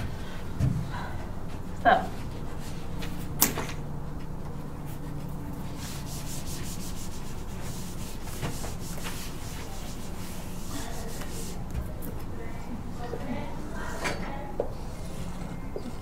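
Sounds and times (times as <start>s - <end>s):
eraser rubbing whiteboard: 4.9s - 11.7s
marker scratching whiteboard: 4.9s - 11.8s.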